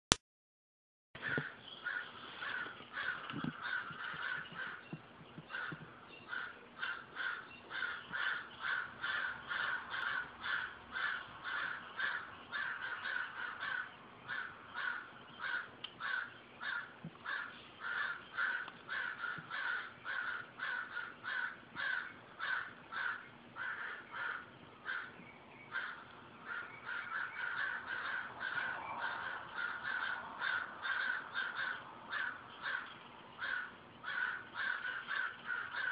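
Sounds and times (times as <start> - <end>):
crows cawing: 1.2 - 35.9.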